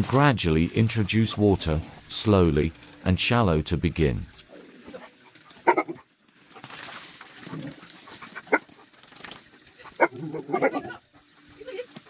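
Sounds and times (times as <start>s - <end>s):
dogs yipping: 4.7s - 12.0s.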